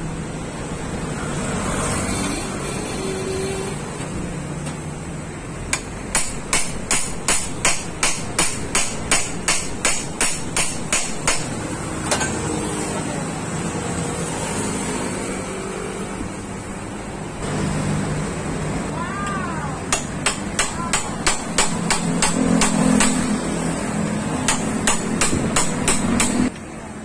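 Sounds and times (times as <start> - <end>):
hammer striking metal: 5.7 - 12.4, 19.9 - 23.6, 24.4 - 26.6.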